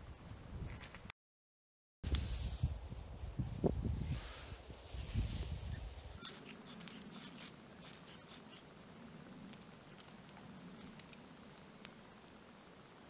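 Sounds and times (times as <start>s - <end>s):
knife scraping fire steel: 6.1s - 8.6s.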